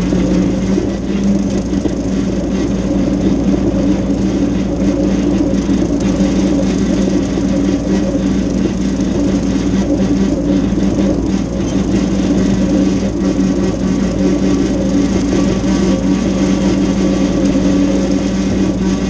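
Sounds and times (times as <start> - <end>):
tractor engine and mower drone: 0.0 - 19.0.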